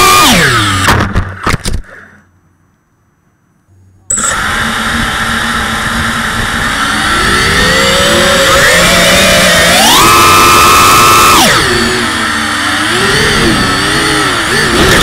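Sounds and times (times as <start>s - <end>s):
quadcopter motors running: 0.0s - 0.9s, 4.1s - 15.0s.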